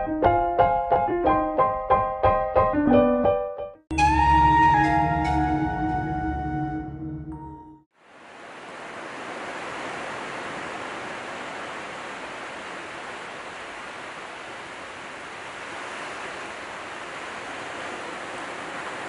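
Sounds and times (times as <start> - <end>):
small waves breaking on beach: 7.9 - 19.0.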